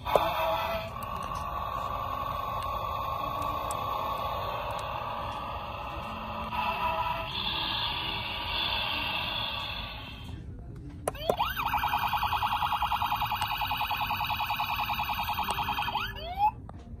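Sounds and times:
noise: 0.0s - 17.0s
toy electronic siren warbling: 11.1s - 16.6s.

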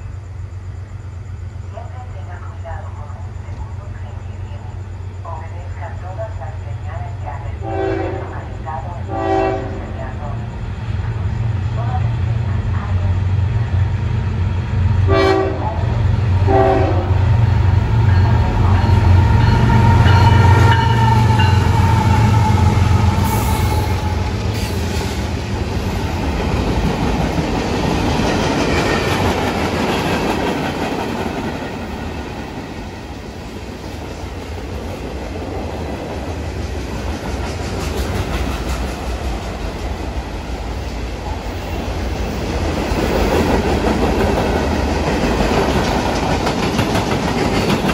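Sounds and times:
train horn chord: 7.6s - 8.4s, 9.1s - 9.8s, 15.1s - 15.8s, 16.4s - 17.2s
train wheels clattering on rails: 24.2s - 33.0s, 34.1s - 40.5s, 42.0s - 47.9s.

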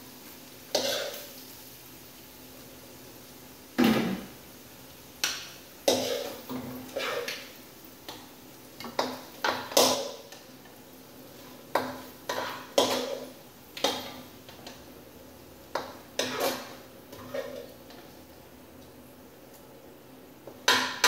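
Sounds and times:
spatula knocking in metal skillet: 8.8s - 10.4s, 20.4s - 21.0s.

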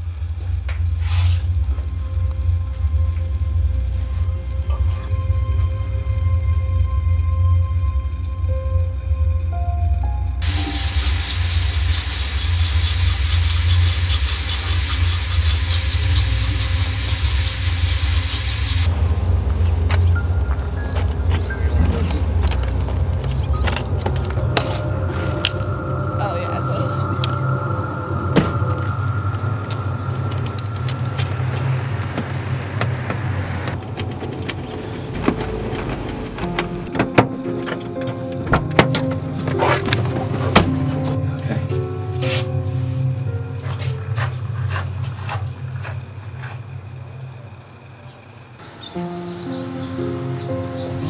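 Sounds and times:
car engine idling: 10.4s - 18.9s
loud steady hissing: 10.4s - 19.0s.

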